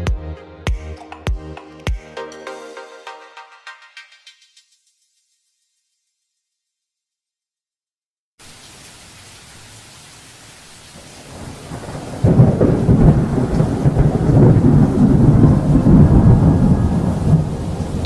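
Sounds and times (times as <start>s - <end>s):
thunder rumbling: 11.2s - 18.0s.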